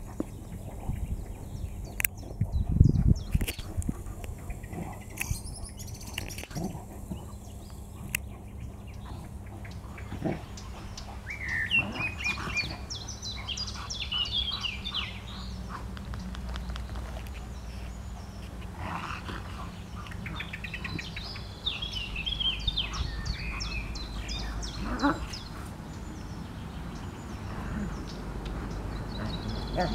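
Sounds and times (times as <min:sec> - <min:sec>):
dogs play-fighting: 0:00.0 - 0:21.8
low outdoor rumble: 0:00.0 - 0:29.9
songbirds chirping: 0:00.0 - 0:29.9.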